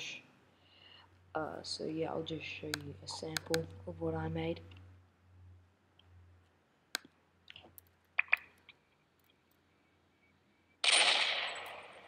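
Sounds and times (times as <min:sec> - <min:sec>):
mouse clicks: 0:02.7 - 0:03.7, 0:06.9 - 0:08.8
pistol gunshot: 0:10.8 - 0:12.0.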